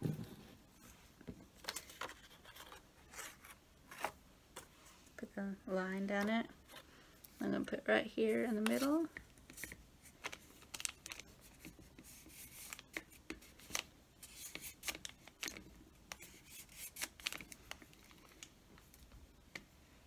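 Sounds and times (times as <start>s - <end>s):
paper rubbing and rustling: 9.6s - 18.4s.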